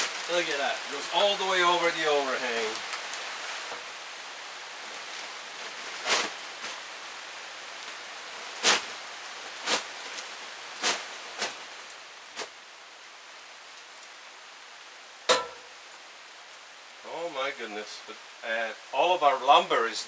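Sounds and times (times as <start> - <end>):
rain falling on a tarp: 0.0 - 20.0.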